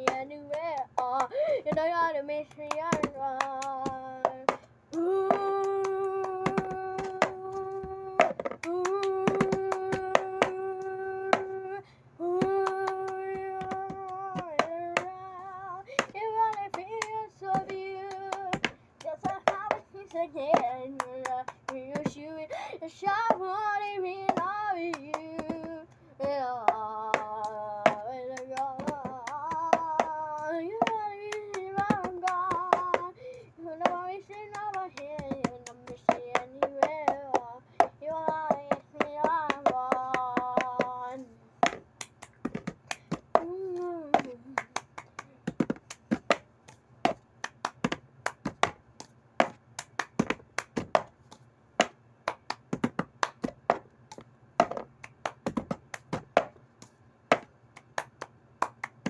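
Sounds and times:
person singing: 0.0s - 41.5s, 43.3s - 45.5s
hands clapping: 2.6s - 10.6s, 33.8s - 59.0s.

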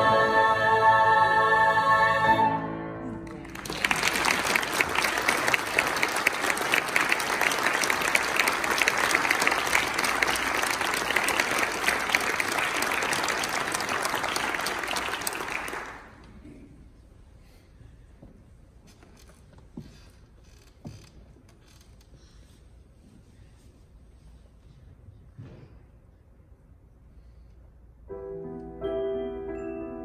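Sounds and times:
choir holding a chord: 0.0s - 3.2s
audience applauding: 3.2s - 16.3s.

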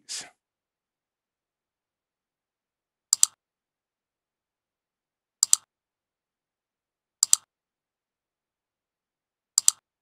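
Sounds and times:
computer mouse clicking: 3.1s - 3.4s, 5.4s - 5.7s, 7.2s - 7.5s, 9.6s - 9.9s.

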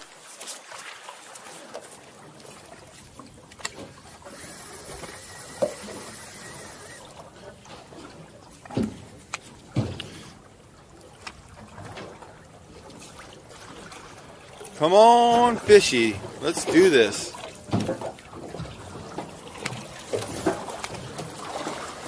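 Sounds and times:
water lapping against boat hull: 0.0s - 22.0s
sharp knocks on boat: 8.6s - 10.4s, 17.7s - 21.3s.

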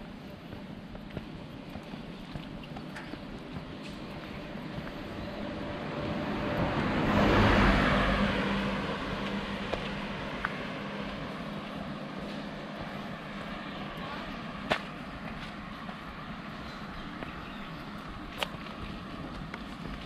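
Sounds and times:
motor vehicle passing: 1.6s - 20.0s.

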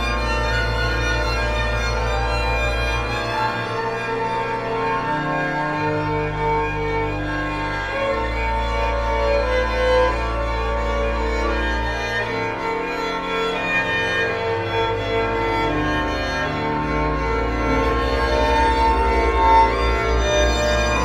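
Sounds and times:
organ chords: 0.0s - 21.0s.

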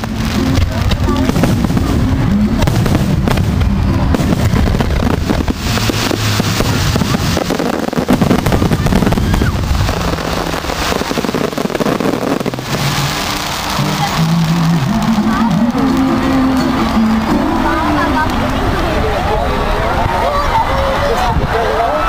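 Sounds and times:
fireworks shells bursting: 0.0s - 16.0s
fireworks crackling: 0.0s - 20.5s.

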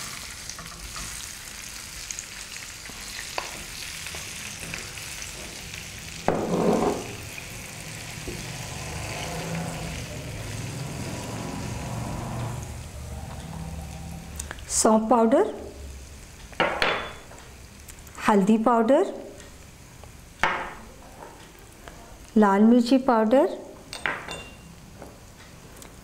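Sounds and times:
food sizzling in oil: 0.0s - 12.9s
wooden spatula scraping a pan: 6.3s - 7.2s.

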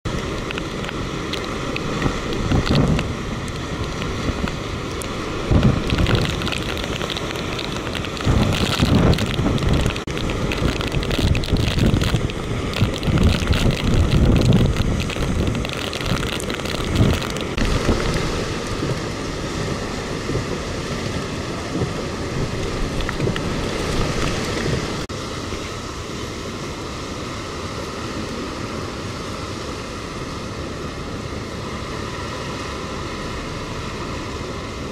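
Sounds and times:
wind gusts buffeting microphone: 0.1s - 25.1s
hiss of wind and rain: 0.1s - 34.9s.

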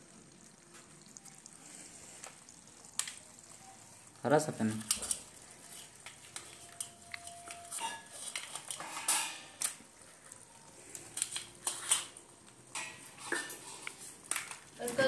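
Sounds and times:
metal plates clanking: 8.7s - 9.6s.

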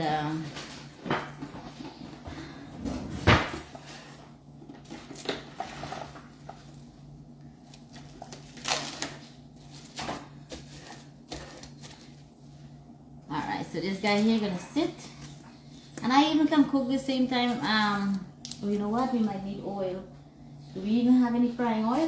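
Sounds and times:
plastic wrap crinkling: 4.7s - 12.5s.

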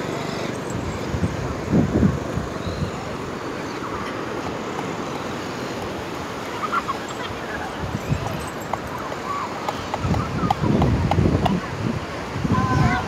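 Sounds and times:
wind buffeting microphone: 0.0s - 3.4s, 7.2s - 13.0s
low surf rushing: 0.0s - 13.0s.

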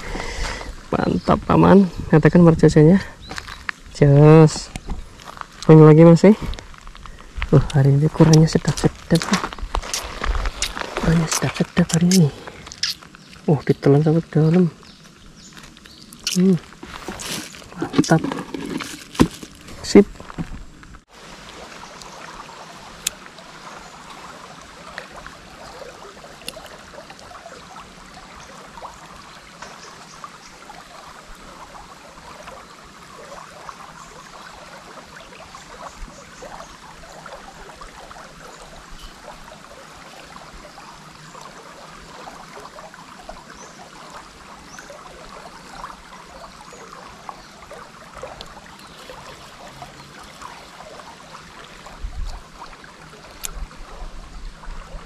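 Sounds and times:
river water flowing: 0.0s - 55.0s.

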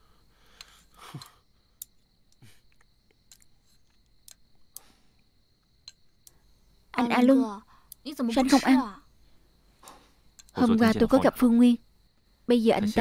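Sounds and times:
chopsticks clicking on bowls: 9.8s - 10.6s.

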